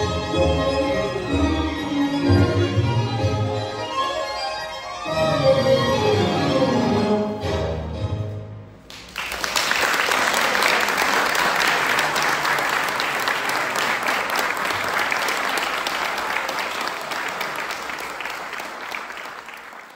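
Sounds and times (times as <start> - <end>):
audience applauding: 8.9 - 19.9.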